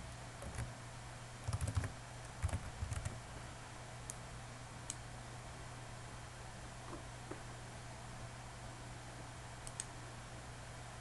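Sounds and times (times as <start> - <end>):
faint low hum: 0.0 - 11.0
keyboard typing: 0.4 - 0.7, 1.4 - 3.2.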